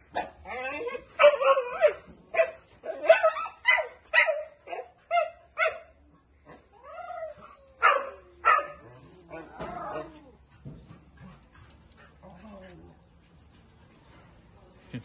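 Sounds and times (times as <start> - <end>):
dogs yipping: 0.2 - 5.9, 7.2 - 10.3.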